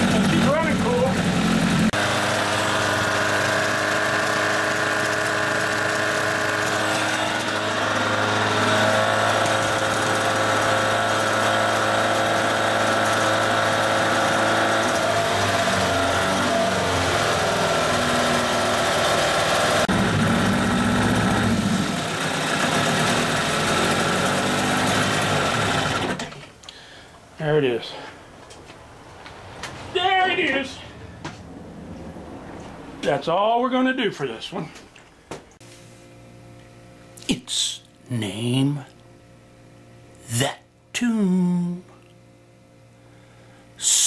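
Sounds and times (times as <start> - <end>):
outboard motor running: 0.0 - 27.0.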